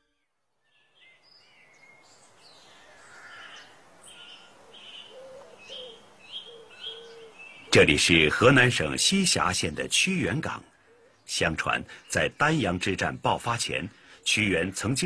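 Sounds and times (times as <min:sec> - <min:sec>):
birds chirping and whistling: 0:00.0 - 0:08.3.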